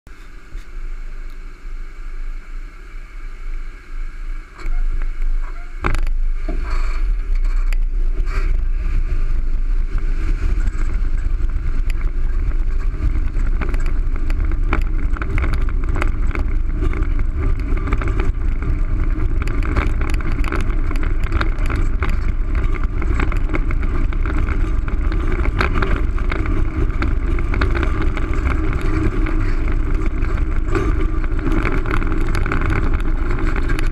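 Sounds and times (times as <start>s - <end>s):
skateboard wheels rolling on asphalt: 0.1s - 33.9s
wind on microphone: 0.1s - 33.9s
small clicks from grit: 11.8s - 33.9s.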